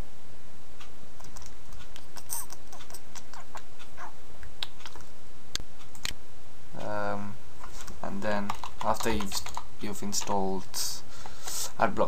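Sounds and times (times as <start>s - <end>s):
microphone hiss: 0.0s - 12.0s.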